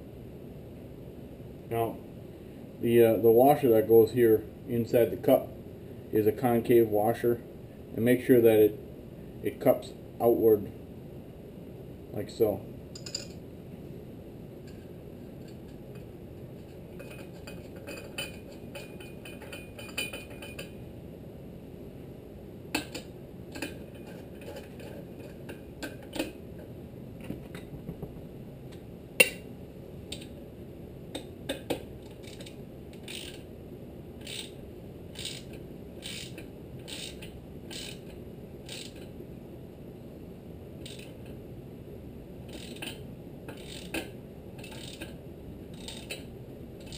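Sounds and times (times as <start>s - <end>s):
metal clinks: 13.0s - 13.4s, 17.0s - 20.8s
socket ratchet clicking: 31.2s - 33.4s, 34.2s - 34.6s, 35.2s - 38.1s, 38.7s - 39.1s, 40.8s - 41.1s, 42.5s - 45.2s, 45.8s - 46.2s.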